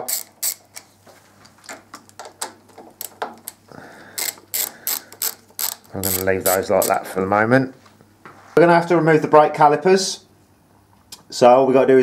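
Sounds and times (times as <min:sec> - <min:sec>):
ratchet wrench clicking: 0:00.0 - 0:00.8, 0:04.1 - 0:07.1.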